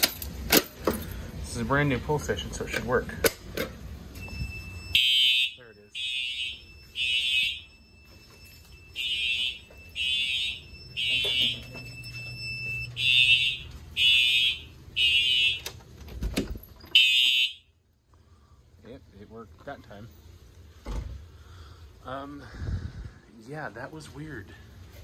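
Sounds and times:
faint steady high tone: 4.2s - 13.7s
fire alarm horn blasts: 4.2s - 15.8s, 16.9s - 17.8s.

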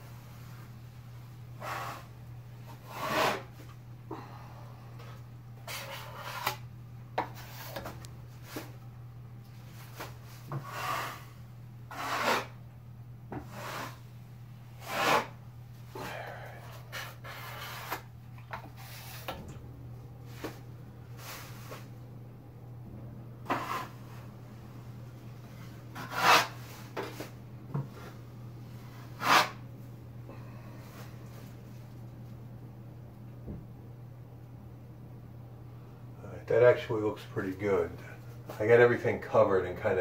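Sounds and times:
steady low hum: 0.0s - 40.0s
drywall knife scraping: 2.7s - 3.6s, 5.6s - 6.6s, 10.5s - 11.3s, 11.9s - 12.6s, 13.3s - 14.0s, 14.8s - 15.4s, 16.6s - 18.1s, 23.4s - 24.2s, 25.9s - 27.3s, 28.9s - 29.6s.

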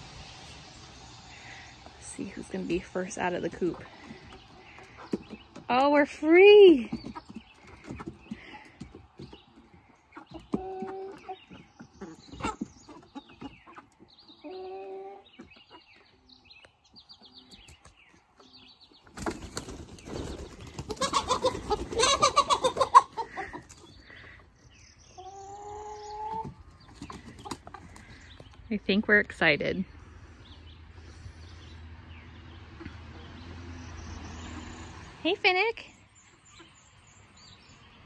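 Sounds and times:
chickens calling: 0.0s - 38.0s
wings flapping: 19.1s - 23.0s.

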